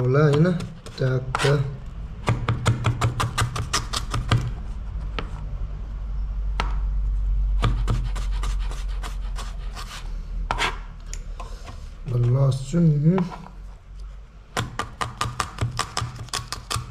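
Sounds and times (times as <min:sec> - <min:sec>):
knife chopping on plastic board: 0:00.2 - 0:01.5, 0:02.2 - 0:04.6, 0:07.6 - 0:09.5, 0:14.5 - 0:16.9.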